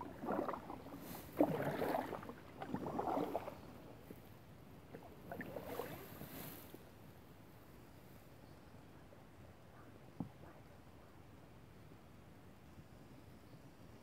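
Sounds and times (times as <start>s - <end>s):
paddle splashing in water: 0.0s - 4.2s, 4.8s - 6.8s.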